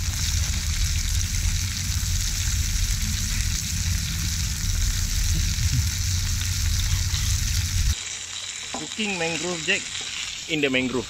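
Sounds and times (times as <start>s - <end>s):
steady low rumble: 0.0s - 8.0s
oil sizzling in a frying pan: 0.0s - 11.0s.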